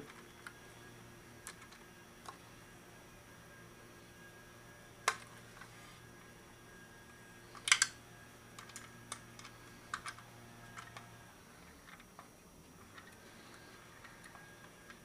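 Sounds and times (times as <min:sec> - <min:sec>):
motorcycle parts clicking into place: 0:07.6 - 0:07.9.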